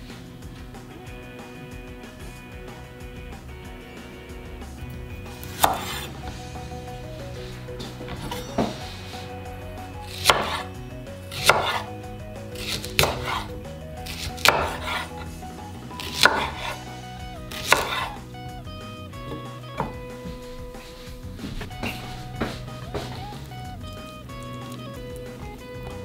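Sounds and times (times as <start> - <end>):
knife chopping on wooden board: 5.4 - 6.1, 7.8 - 9.3, 10.1 - 10.7, 11.3 - 11.9, 12.6 - 15.3, 16.0 - 16.8, 17.5 - 18.2, 19.2 - 23.5.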